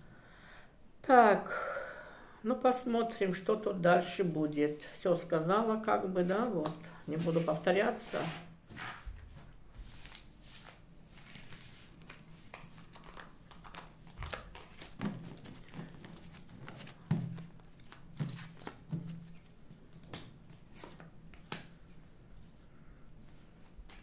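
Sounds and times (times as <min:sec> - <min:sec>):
playing cards shuffled by hand: 0:06.6 - 0:22.6, 0:23.2 - 0:24.0.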